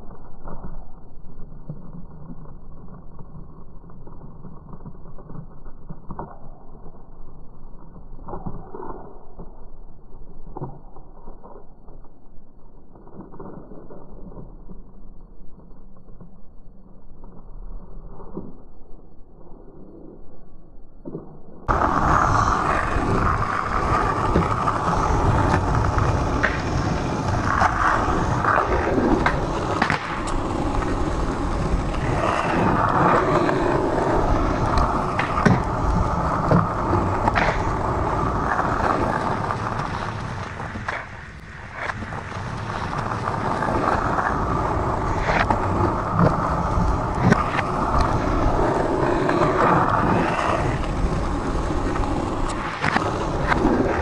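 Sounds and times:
skateboard wheels rolling on asphalt: 0.0 - 20.2, 21.0 - 54.0
skateboard clacks: 21.1 - 54.0.

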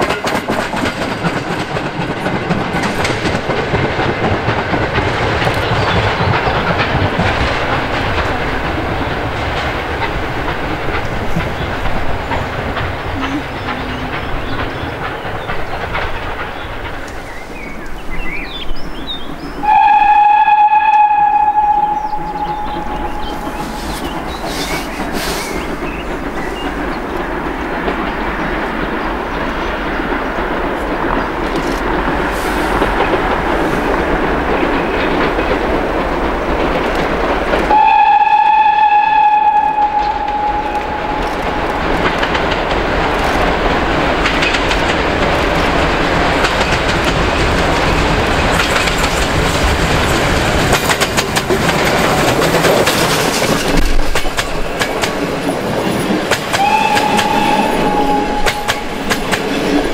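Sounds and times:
wheels clicking over rail joints: 0.0 - 19.9, 22.1 - 38.4, 40.0 - 59.9
steam locomotive running: 0.0 - 59.9
steam whistle blast: 19.6 - 24.0, 37.7 - 41.2, 56.6 - 59.0.

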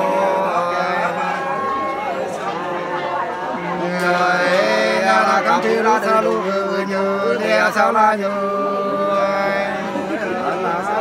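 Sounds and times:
man singing unaccompanied: 3.8 - 11.0.

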